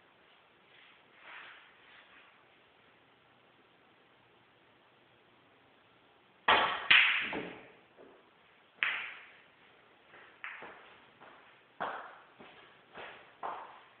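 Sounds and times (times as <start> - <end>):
snooker balls clacking: 6.5 - 7.8, 8.8 - 9.4, 10.3 - 10.9.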